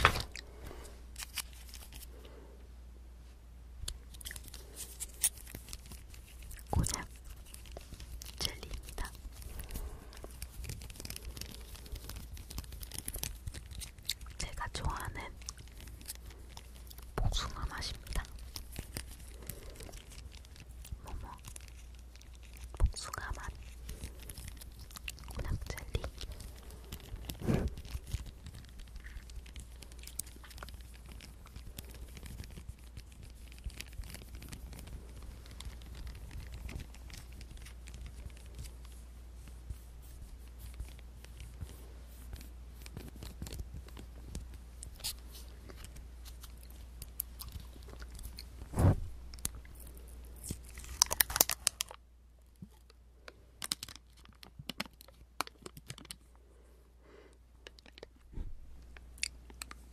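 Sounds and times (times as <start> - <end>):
plastic wrapper crinkling: 0.0 - 2.2, 3.8 - 56.3, 57.6 - 59.9.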